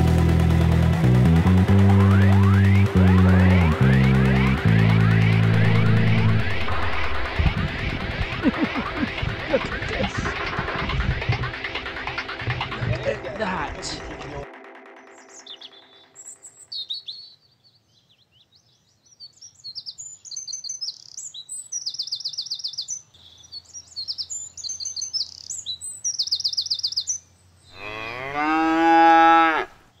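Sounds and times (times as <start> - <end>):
birds chirping and trilling: 2.0 - 14.3, 15.0 - 30.0
cow mooing: 27.7 - 29.8.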